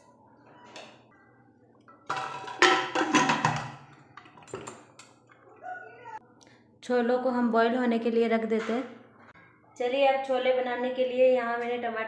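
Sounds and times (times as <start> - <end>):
metal lid clanking against pot: 2.1 - 3.8.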